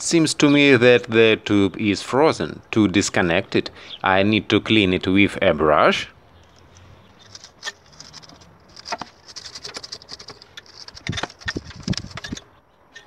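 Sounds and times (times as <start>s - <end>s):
wire brush scrubbing metal: 7.2s - 13.0s.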